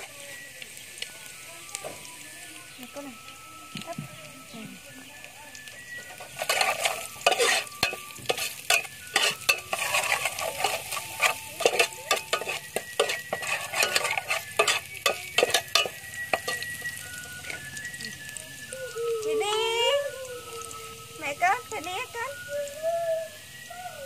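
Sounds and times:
spoon scraping wet food in bowl: 0:06.2 - 0:16.6.

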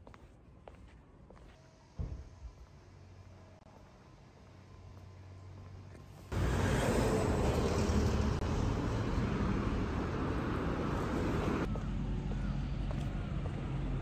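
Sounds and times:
passing cars rushing: 0:06.3 - 0:11.7.

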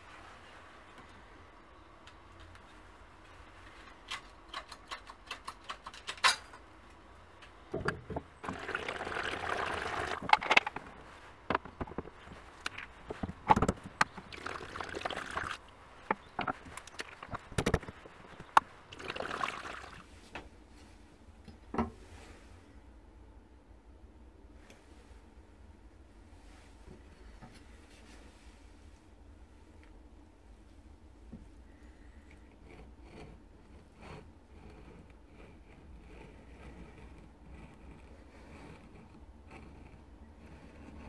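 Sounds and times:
sharp clicks and knocks: 0:03.7 - 0:08.6, 0:11.5 - 0:14.4, 0:16.0 - 0:18.7.

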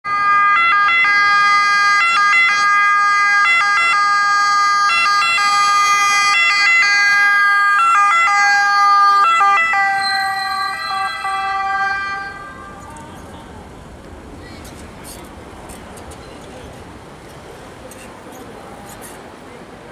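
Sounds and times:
ambulance siren wailing: 0:00.1 - 0:13.0.

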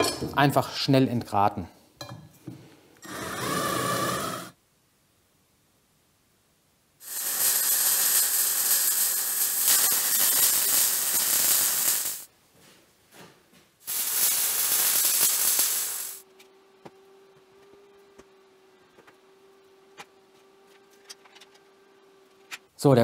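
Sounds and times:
welding arc crackling and hissing: 0:07.0 - 0:12.3, 0:13.8 - 0:16.2.

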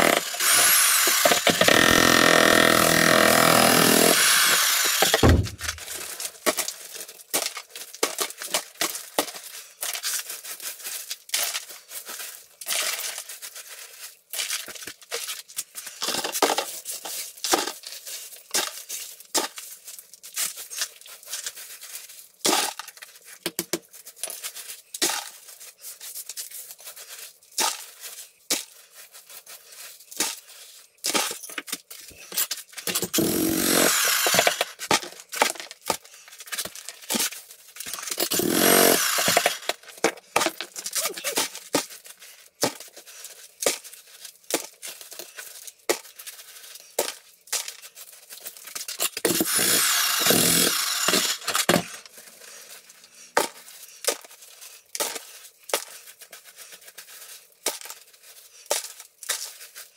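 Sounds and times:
demolition hammer chiselling concrete: 0:00.0 - 0:06.1, 0:32.9 - 0:35.6, 0:37.9 - 0:39.8, 0:49.1 - 0:52.1
concrete chunks clattering into bucket: 0:31.0 - 0:42.9, 0:44.5 - 0:52.1.

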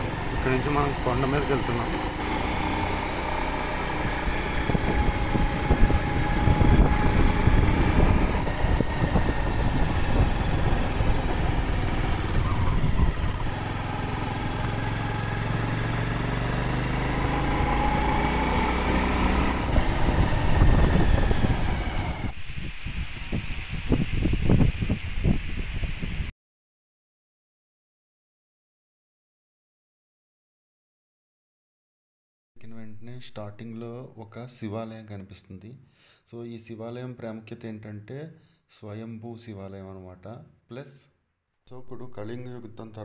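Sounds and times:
small motorbike engine running: 0:00.0 - 0:24.4
wind rumble on microphone: 0:03.9 - 0:14.7, 0:17.3 - 0:26.3.

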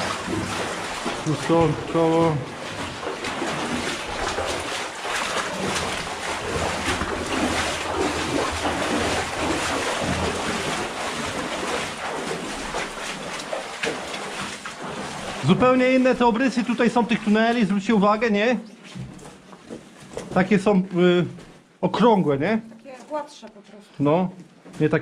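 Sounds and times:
footsteps splashing through shallow water: 0:00.0 - 0:22.1.

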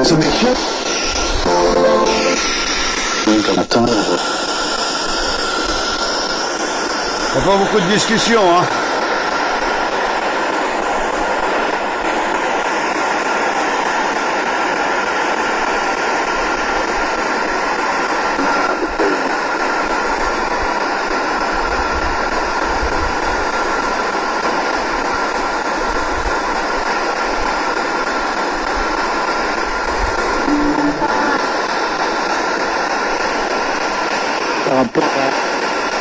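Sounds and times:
constant high-pitched tone: 0:00.0 - 0:08.4, 0:30.3 - 0:31.7
loud steady hiss: 0:00.0 - 0:36.0.

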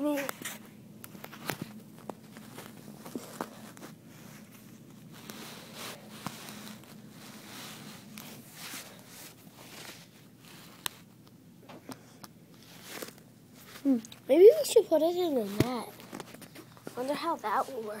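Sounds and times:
fingers rustling on recorder: 0:00.3 - 0:14.2.

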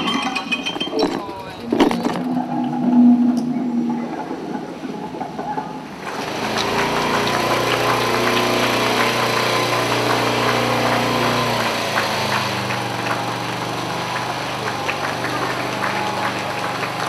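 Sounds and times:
small engine running: 0:06.0 - 0:17.0.

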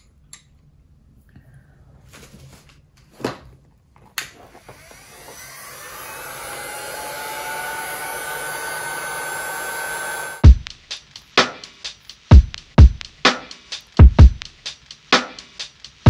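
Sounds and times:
heat gun blowing with whine: 0:04.5 - 0:10.4.

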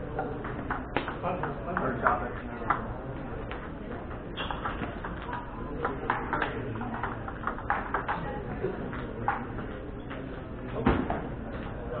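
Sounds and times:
ping pong ball clicking off paddles: 0:00.0 - 0:11.3
ball bouncing on table: 0:00.2 - 0:08.3.

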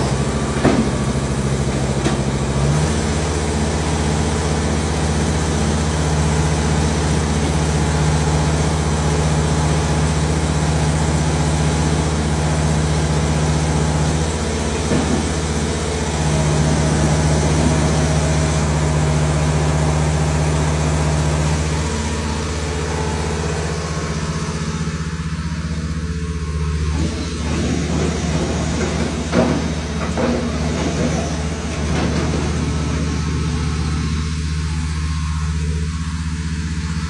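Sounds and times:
drilling rig engine running: 0:00.0 - 0:37.0
sharp knocks and clanks: 0:00.6 - 0:01.2, 0:14.8 - 0:15.4, 0:27.0 - 0:33.0.

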